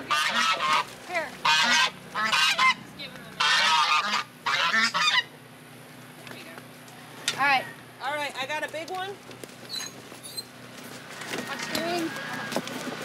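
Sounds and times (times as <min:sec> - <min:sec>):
geese honking: 0:00.0 - 0:05.4, 0:11.0 - 0:12.6.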